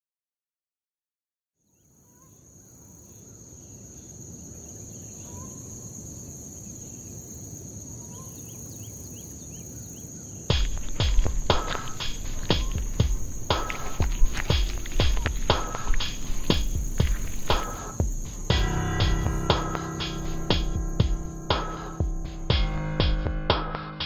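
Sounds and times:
insect chirps: 1.6 - 23.2
high insect trill: 1.8 - 23.9
booming percussive hits: 10.5 - 24.0
low rumble: 12.1 - 23.5.

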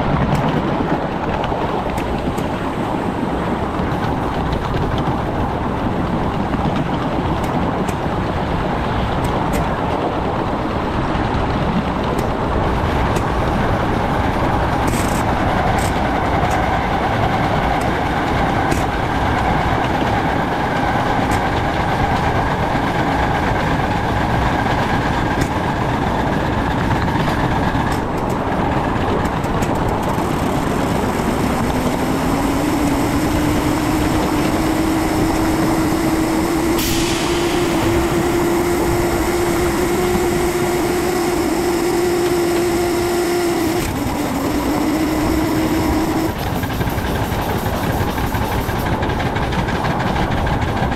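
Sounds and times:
steam locomotive running noise: 0.0 - 50.9
low rising tone: 30.0 - 46.4.

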